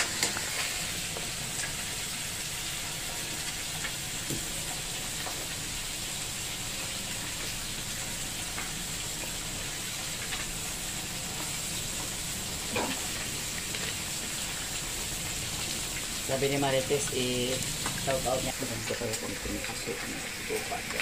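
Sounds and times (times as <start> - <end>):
food boiling in a pan: 0.0 - 21.0.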